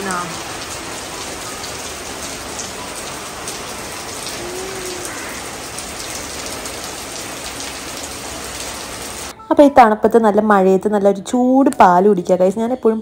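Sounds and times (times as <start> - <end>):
steady rain falling: 0.0 - 9.3.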